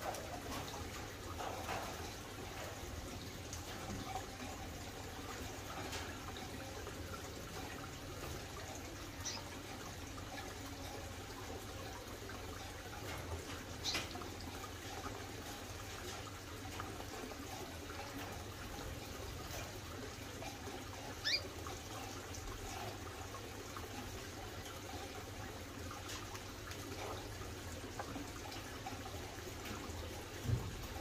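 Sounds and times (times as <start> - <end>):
water trickling: 0.0 - 31.0
small bird chirp: 21.2 - 21.5.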